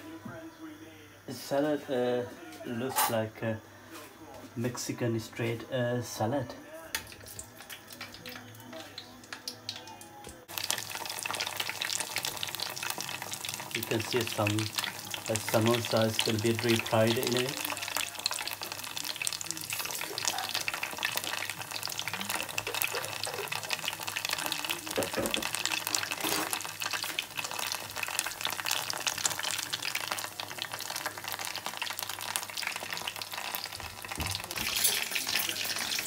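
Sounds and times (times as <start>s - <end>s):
food sizzling in hot oil: 4.7s - 36.0s.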